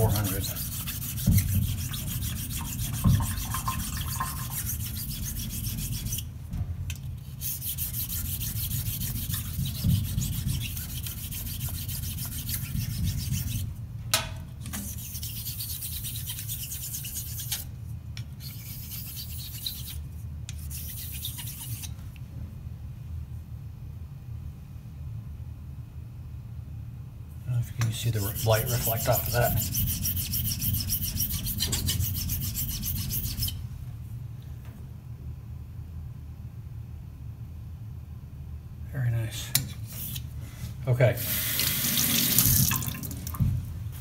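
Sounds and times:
razor rubbing on sharpening plate: 0.0s - 6.2s, 7.4s - 13.7s, 14.8s - 17.6s, 18.4s - 20.0s, 20.6s - 21.9s, 28.1s - 33.6s.

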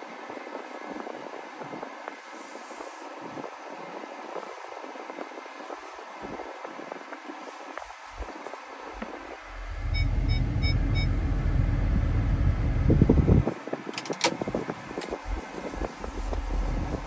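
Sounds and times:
low rumble in truck cab: 8.1s - 17.0s
short electronic beeps: 9.8s - 11.4s.

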